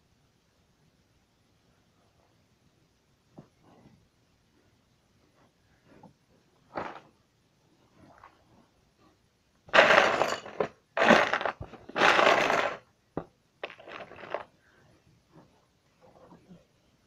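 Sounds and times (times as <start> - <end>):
plastic bricks clattering: 9.7 - 12.9, 13.6 - 14.5.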